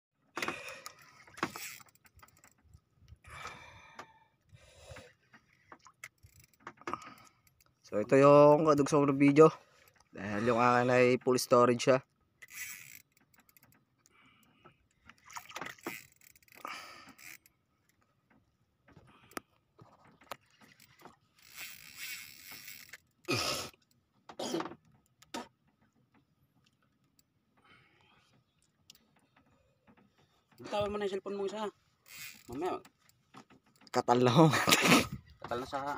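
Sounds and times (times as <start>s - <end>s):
fishing reel clicking: 0.4s - 3.2s, 4.8s - 13.8s, 15.1s - 17.5s, 20.3s - 24.0s, 32.0s - 34.0s
rasping line stretch: 0.4s - 3.2s, 12.4s - 18.0s, 18.9s - 23.9s, 31.8s - 35.5s.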